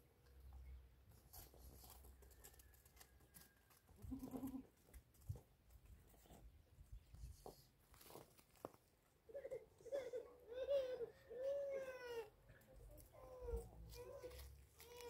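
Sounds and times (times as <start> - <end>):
goat bleating: 4.0 - 4.7.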